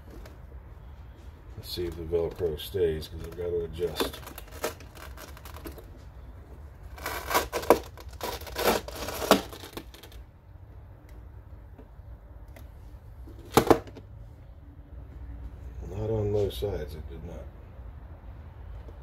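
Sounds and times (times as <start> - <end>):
velcro ripping apart: 3.8 - 5.9, 6.8 - 10.2.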